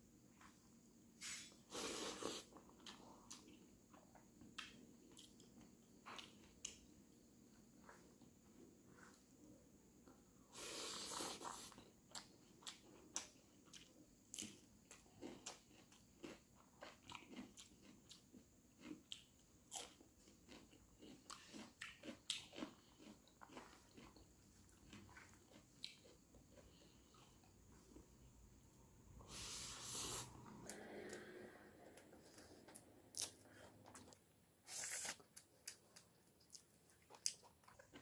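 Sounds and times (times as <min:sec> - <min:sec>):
close chewing: 0:11.5 - 0:28.1, 0:32.3 - 0:38.0
food crunch: 0:14.4 - 0:27.3.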